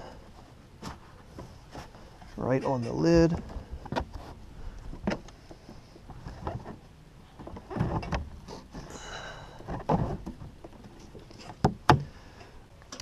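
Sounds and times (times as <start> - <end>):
knocks and rustles on plastic deck: 3.1 - 8.9, 9.6 - 12.1.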